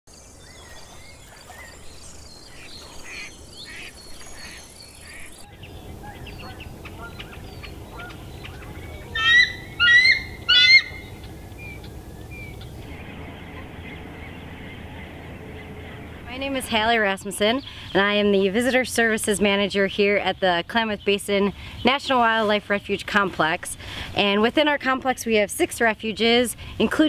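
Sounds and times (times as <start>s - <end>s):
loud sharp bird calls: 0.7s - 16.1s
flock of birds calling: 1.2s - 18.1s.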